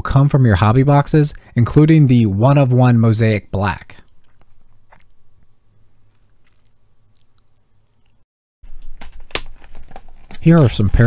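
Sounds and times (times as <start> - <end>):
plastic wrapper crinkling and tearing: 8.7 - 11.0.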